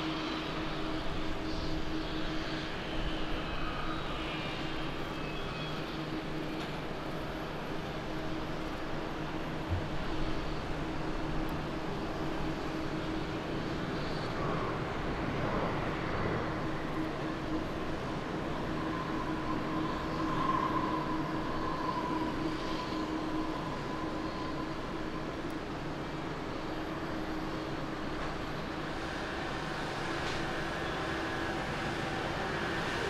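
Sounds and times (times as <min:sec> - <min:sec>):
jet engine whine: 0:00.0 - 0:33.0.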